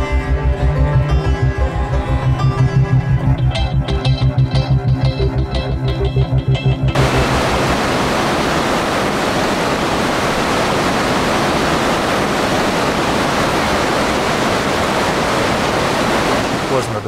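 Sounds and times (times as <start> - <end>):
river rushing over rocks: 7.0 - 16.9
waterfall: 7.0 - 17.0.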